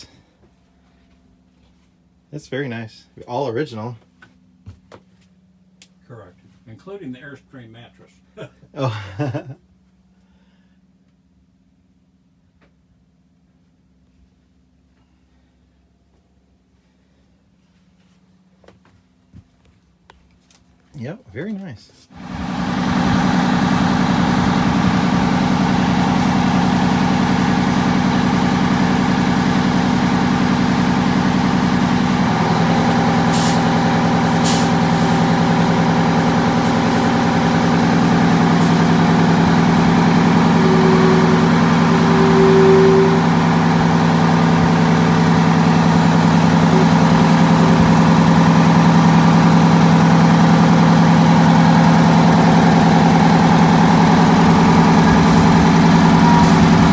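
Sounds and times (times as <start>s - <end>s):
diesel bus engine running: 0.0s - 3.1s, 22.1s - 56.9s.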